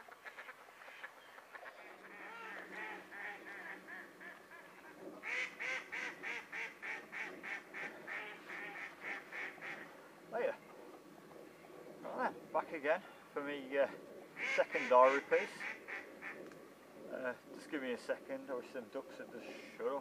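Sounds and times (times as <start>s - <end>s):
waterfowl calling: 0.0s - 12.4s, 14.0s - 16.5s.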